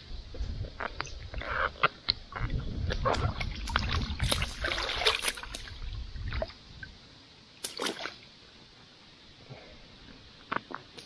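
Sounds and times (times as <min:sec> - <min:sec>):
river water splashing: 0:03.1 - 0:06.7, 0:07.5 - 0:08.5.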